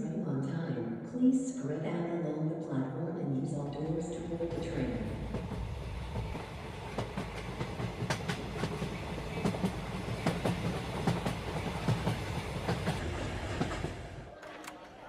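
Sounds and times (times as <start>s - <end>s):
train rumbling on rails: 3.9s - 14.4s.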